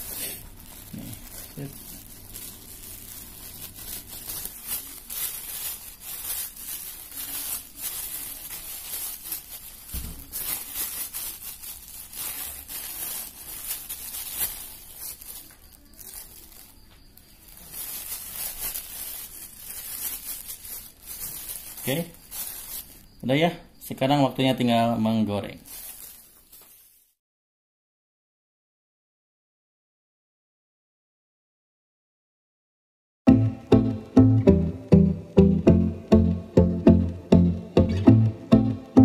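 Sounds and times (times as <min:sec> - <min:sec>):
plastic bag crinkling: 0:00.0 - 0:23.4, 0:24.3 - 0:27.2.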